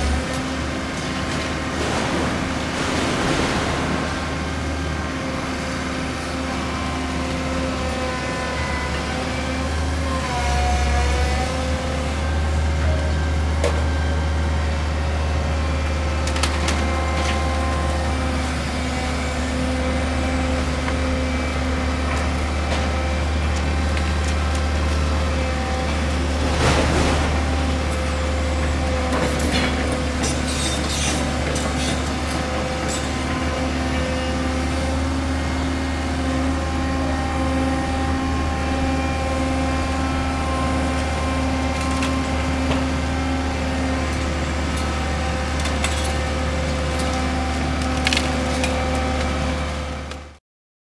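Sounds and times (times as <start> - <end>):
excavator diesel engine running: 0.0 - 50.4
rubble clattering and clanking: 0.9 - 5.6
falling debris crash: 1.0 - 6.4, 26.2 - 28.7
bucket tearing into roof: 1.6 - 5.0.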